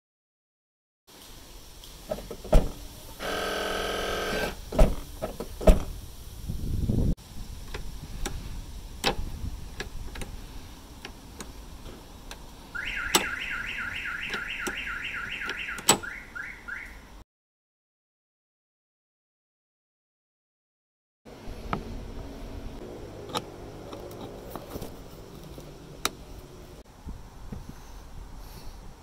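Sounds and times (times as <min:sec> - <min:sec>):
tailgate lifting rush: 0:02.1 - 0:06.0
latch clicks: 0:09.0 - 0:10.4, 0:11.0 - 0:13.5, 0:14.2 - 0:16.2
lock clicks: 0:13.0 - 0:13.4, 0:14.2 - 0:16.1.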